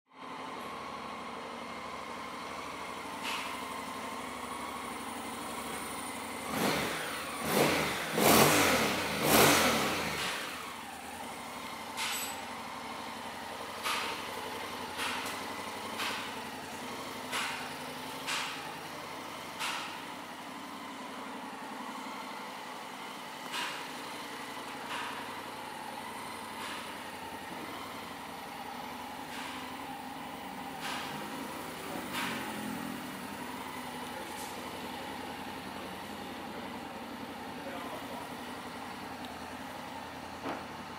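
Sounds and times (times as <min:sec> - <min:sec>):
motorcycle engine idling: 0:00.2 - 0:09.2, 0:10.0 - 0:40.9
engine revving: 0:06.2 - 0:10.9.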